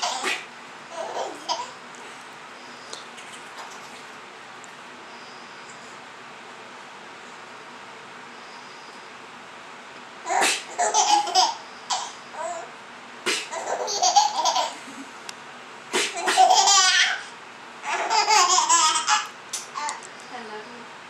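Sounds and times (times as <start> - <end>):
baby laughing: 0.0 - 1.8, 10.3 - 12.7, 13.4 - 15.0, 16.1 - 19.9.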